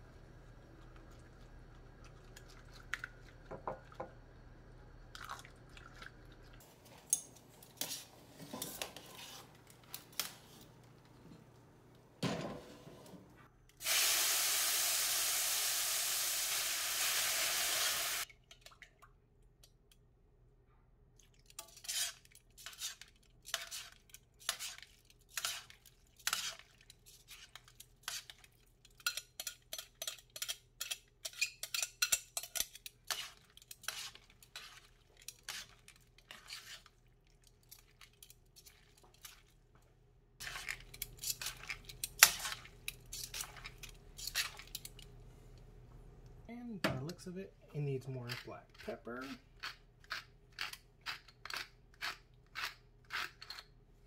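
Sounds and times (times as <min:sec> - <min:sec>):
pasta sizzling in hot pan: 0:13.8 - 0:18.3
whisk scraping glass bowl: 0:21.7 - 0:28.4, 0:29.0 - 0:36.9.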